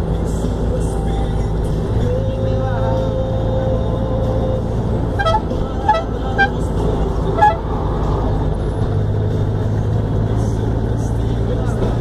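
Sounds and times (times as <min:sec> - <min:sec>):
engine and road rumble: 0:00.0 - 0:12.0
vehicle horn toots: 0:05.1 - 0:07.8.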